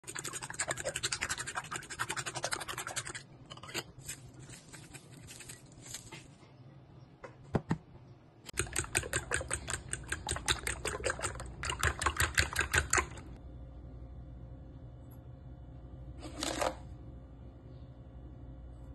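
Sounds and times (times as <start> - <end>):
fork beating eggs in bowl: 0.0 - 5.8, 8.5 - 13.4.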